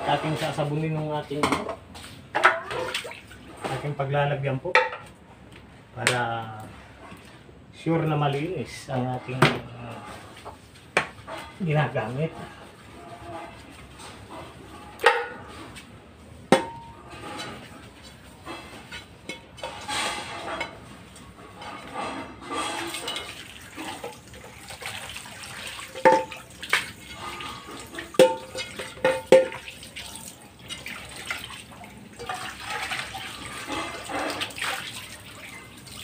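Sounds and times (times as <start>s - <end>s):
metal pan clanking: 16.5s - 17.7s, 25.7s - 29.9s
sponge scrubbing a pan: 21.5s - 35.7s
water splashing: 23.1s - 36.0s.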